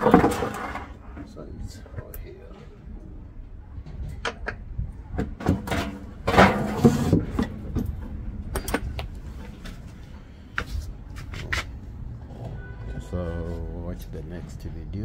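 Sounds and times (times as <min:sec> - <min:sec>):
hard objects knocking and clicking: 0:03.9 - 0:09.2.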